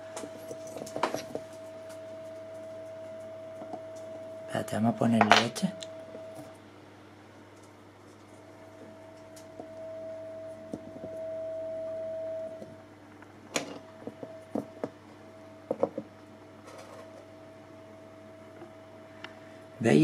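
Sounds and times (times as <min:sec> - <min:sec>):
steady electric tone: 0:00.0 - 0:06.6, 0:08.5 - 0:15.8.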